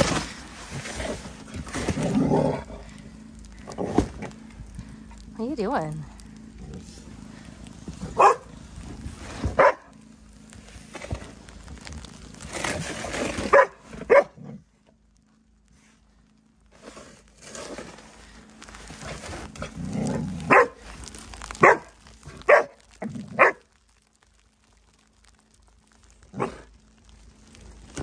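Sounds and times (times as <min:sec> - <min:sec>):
small dog barking: 0:08.1 - 0:08.5, 0:09.6 - 0:09.9, 0:13.5 - 0:14.5, 0:20.4 - 0:20.8, 0:21.6 - 0:23.7, 0:26.3 - 0:26.7
rough scraping hiss: 0:16.7 - 0:23.6.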